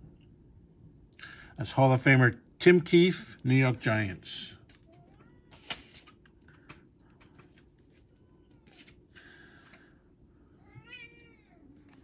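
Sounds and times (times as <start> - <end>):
cat meowing faintly: 10.6 - 12.0.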